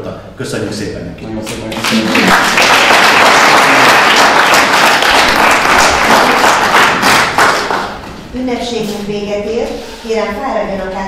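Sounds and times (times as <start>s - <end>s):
audience applauding: 1.5s - 8.1s.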